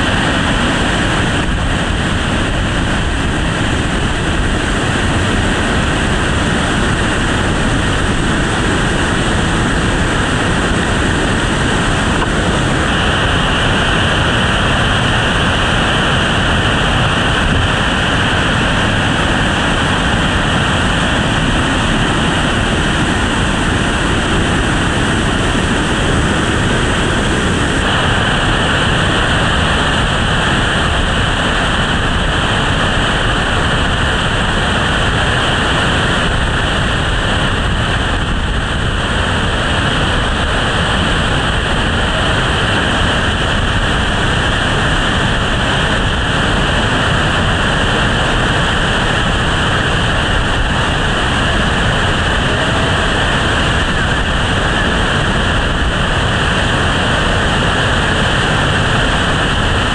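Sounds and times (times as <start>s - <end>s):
whitewater rapids rushing: 0.0s - 59.9s.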